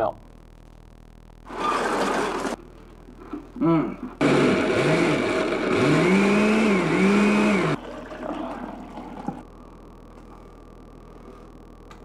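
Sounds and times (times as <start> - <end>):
blender motor running: 4.2 - 7.8.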